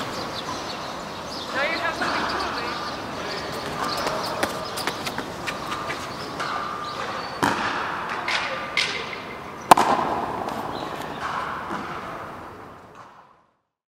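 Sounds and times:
ball knocking off racquets and walls: 7.4s - 9.0s, 9.7s - 13.3s.

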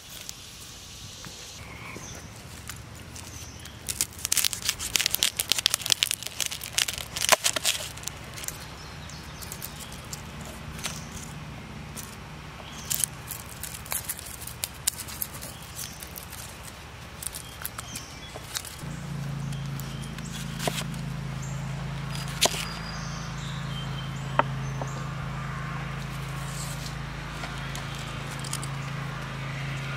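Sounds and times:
garlic skins crackling and tearing: 2.4s - 21.1s, 22.0s - 22.9s
garlic cloves clicking: 3.2s - 11.3s, 12.0s - 18.9s.

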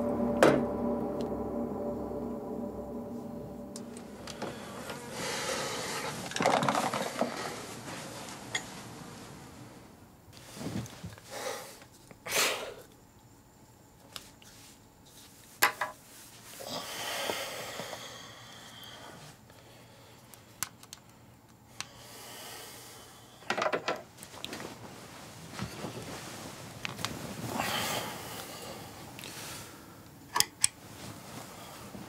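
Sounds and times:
man breathing: 4.1s - 6.2s, 16.6s - 20.3s, 21.8s - 23.5s, 27.5s - 30.0s.

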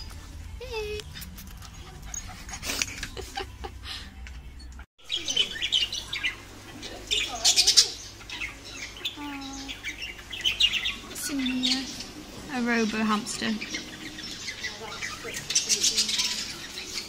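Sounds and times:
budgerigars chattering: 5.0s - 17.0s.

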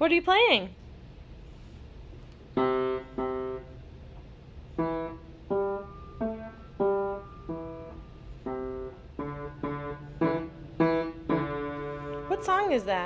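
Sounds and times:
piano single notes: 4.8s - 12.8s.

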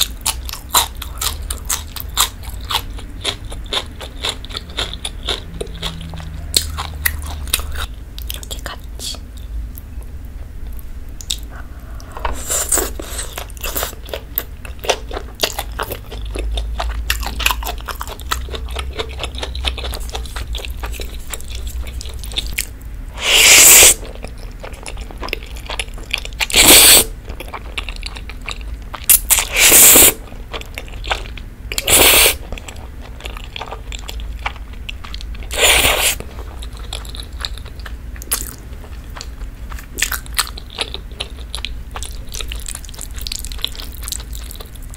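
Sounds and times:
close chewing and crunching: 0.0s - 9.9s, 10.6s - 44.9s
slurping spaghetti: 23.2s - 24.1s, 26.4s - 27.1s, 29.3s - 30.2s, 31.8s - 32.4s, 35.5s - 36.4s.

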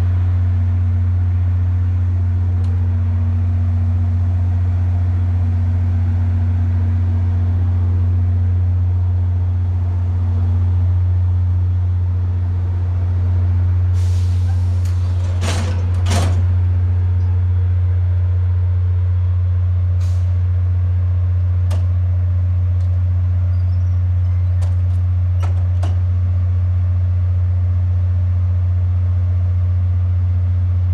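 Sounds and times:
diesel locomotive engine droning: 0.0s - 30.9s
air hissing bursts: 14.0s - 15.3s.

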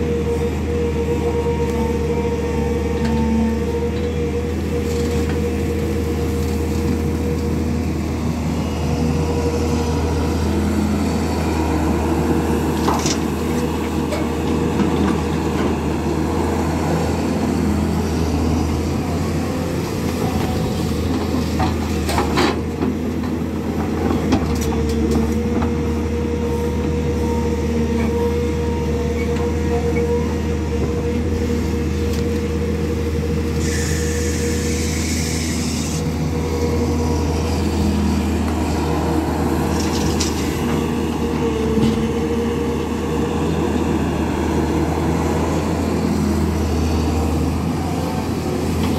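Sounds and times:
excavator diesel engine running: 0.0s - 48.9s
hiss: 33.6s - 36.1s.

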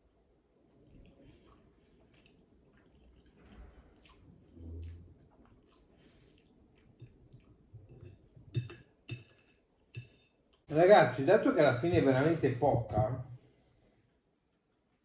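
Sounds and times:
close-up chewing: 0.7s - 8.4s.

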